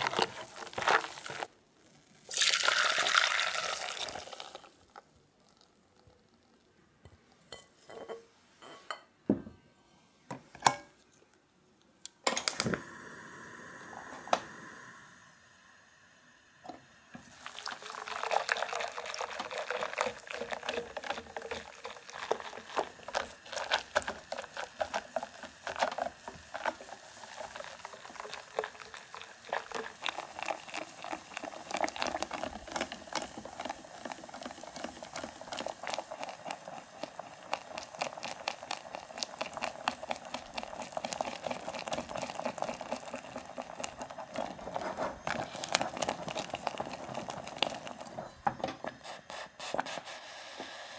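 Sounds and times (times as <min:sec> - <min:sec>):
whisk clicking and scraping a pan: 0:19.2 - 0:50.2.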